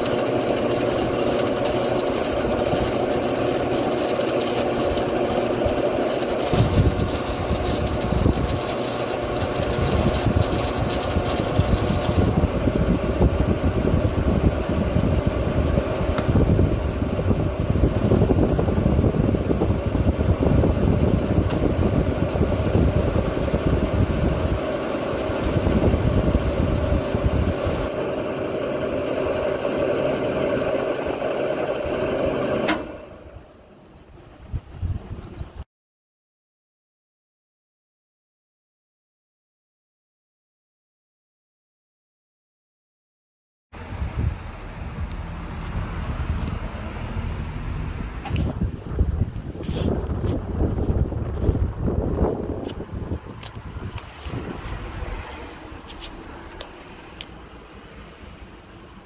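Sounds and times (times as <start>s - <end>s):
welding arc crackle and hiss: 0.0s - 12.4s
cooling fan: 0.0s - 35.6s, 43.8s - 59.0s
welder transformer hum: 0.0s - 35.6s, 43.8s - 59.0s.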